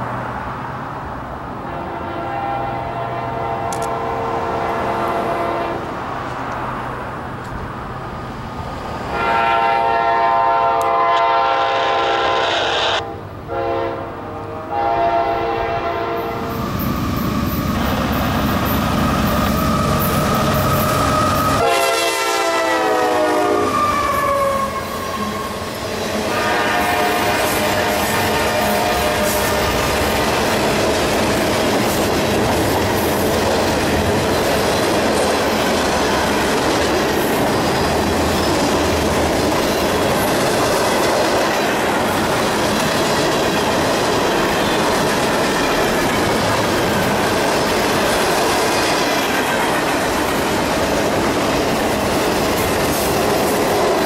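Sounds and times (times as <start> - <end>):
locomotive air horn blasts: 1.6 - 5.9, 9.1 - 16.6, 20.8 - 30.1
train wheels clattering on rails: 16.5 - 21.8, 25.2 - 54.0.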